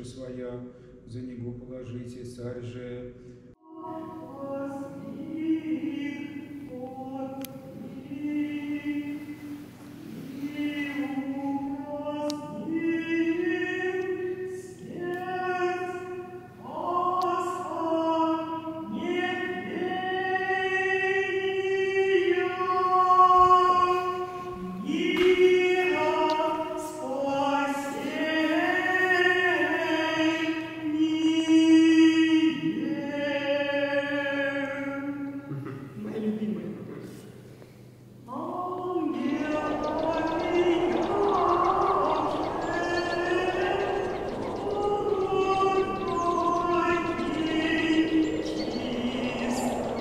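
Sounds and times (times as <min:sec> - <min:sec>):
choir chanting in long held notes: 0:38.4 - 0:50.0.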